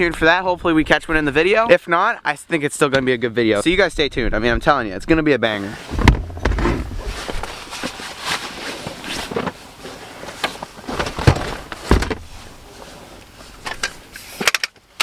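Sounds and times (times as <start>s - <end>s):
rustling: 5.6s - 14.5s
gear knocks and thumps: 5.9s - 8.0s, 10.4s - 12.4s.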